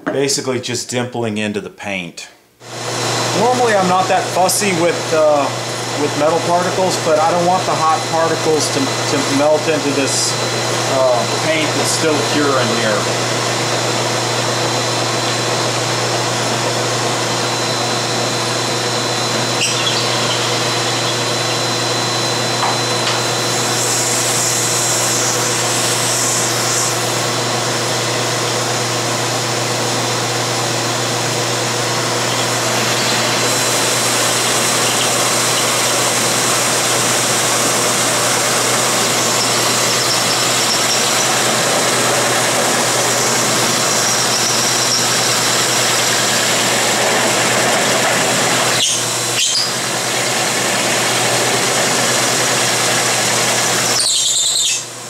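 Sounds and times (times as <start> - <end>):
shop vacuum running: 2.5 - 55.0
drill press countersinking steel: 32.2 - 47.0.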